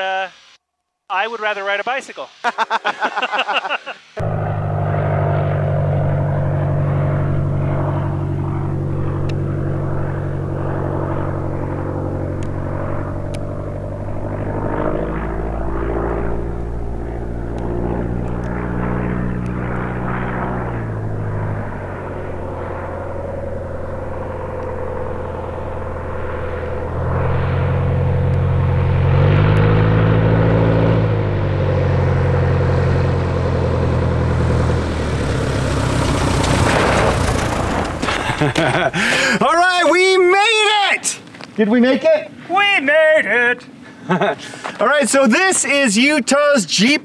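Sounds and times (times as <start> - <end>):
plane engine and propeller drone: 3.4 - 47.0.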